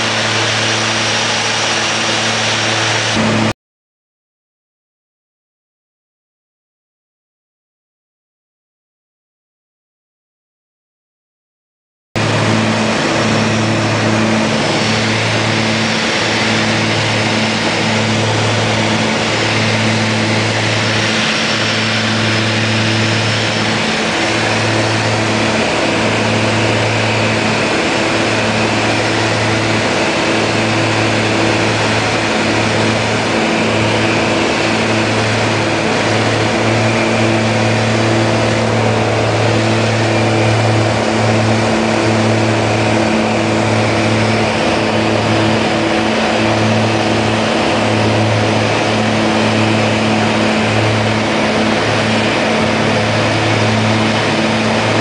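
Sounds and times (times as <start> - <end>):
light aircraft engine drone: 0.0 - 3.5, 12.2 - 55.0
rush of air noise: 0.0 - 3.5, 12.2 - 55.0.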